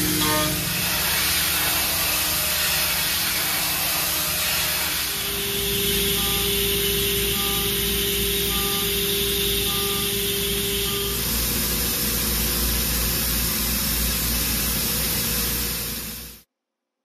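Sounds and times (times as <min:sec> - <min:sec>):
steady machine hum: 0:00.0 - 0:16.4
machine and coolant hiss: 0:00.0 - 0:16.5
faint two-tone beep: 0:05.6 - 0:11.3.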